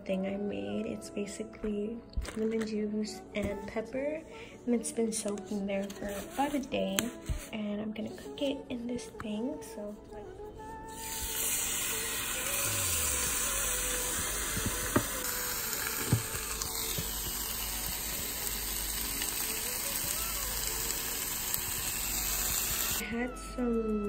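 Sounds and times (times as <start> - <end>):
meat sizzling on a grill: 10.9 - 23.0.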